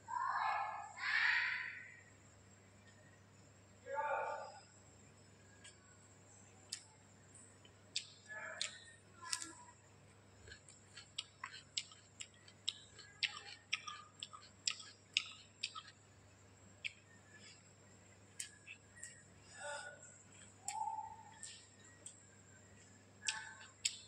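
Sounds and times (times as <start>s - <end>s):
eating clicks: 6.6s - 7.0s, 7.6s - 9.7s, 10.3s - 17.7s, 18.3s - 24.0s.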